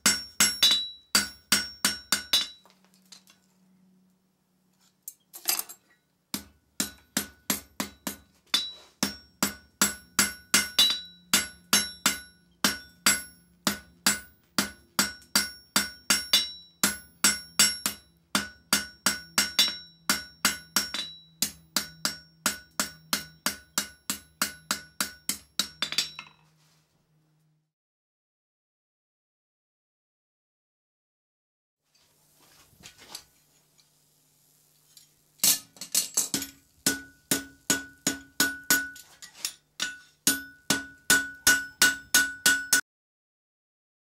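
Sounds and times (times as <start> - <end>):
hammer striking steel on anvil: 0.0 - 2.7, 5.1 - 26.4, 35.4 - 42.8.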